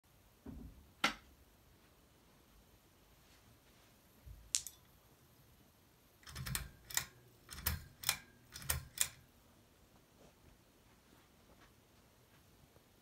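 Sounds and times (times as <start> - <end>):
pull-chain switch clicking: 6.2 - 9.2.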